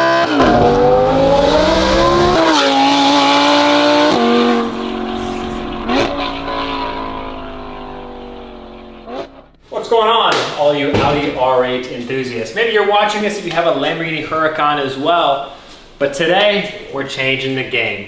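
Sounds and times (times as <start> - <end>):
sports car engine accelerating: 0.0 - 9.6.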